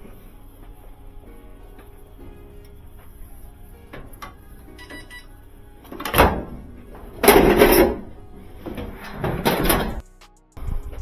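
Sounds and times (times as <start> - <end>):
faint background music: 0.0 - 11.0
sheet metal clanking and rattling: 5.9 - 10.0.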